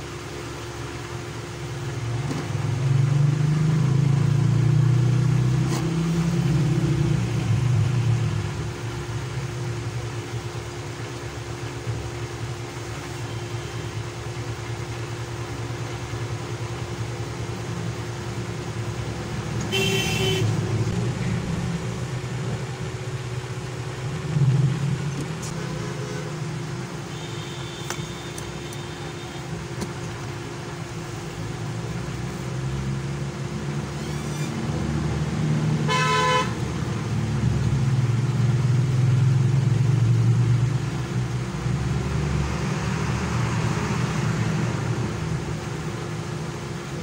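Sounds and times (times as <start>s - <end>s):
steady low hum: 0.0s - 35.5s
road traffic rumble: 0.0s - 47.0s
vehicle horn toot: 19.7s - 20.6s, 27.1s - 29.5s, 35.9s - 36.6s.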